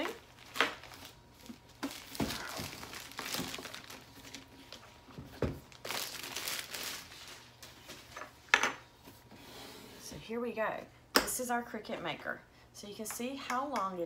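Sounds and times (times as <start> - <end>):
plastic wrapping crinkling: 0.0 - 8.2.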